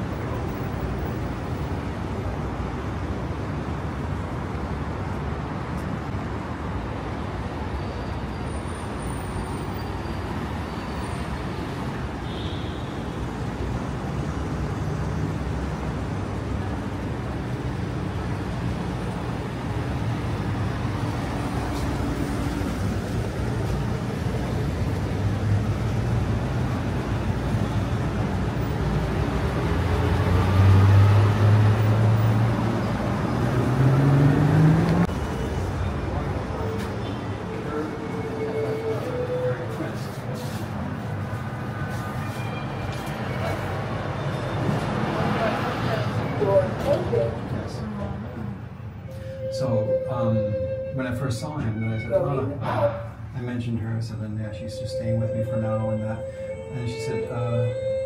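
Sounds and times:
street traffic: 0.0 - 58.0
vehicle engine passing close: 29.0 - 36.6.

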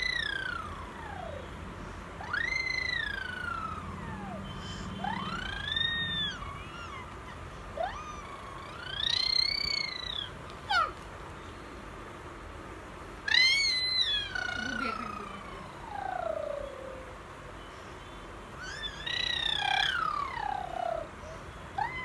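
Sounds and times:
child squealing: 2.2 - 3.8, 4.7 - 11.0, 13.3 - 15.8, 18.6 - 21.1, 21.8 - 22.0.

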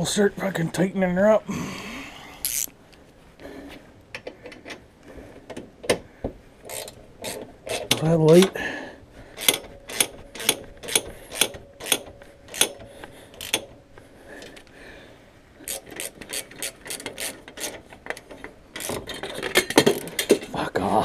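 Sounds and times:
ratchet wrench clicking: 2.4 - 2.7, 6.7 - 8.5, 9.4 - 12.8, 13.4 - 13.7, 15.6 - 18.2, 18.8 - 19.2.

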